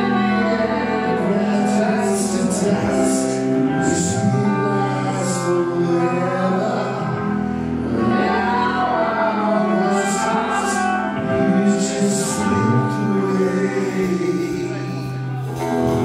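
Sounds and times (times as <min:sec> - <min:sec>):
electric guitars: 0:00.0 - 0:16.0
man singing: 0:00.0 - 0:16.0
drums: 0:12.3 - 0:16.0.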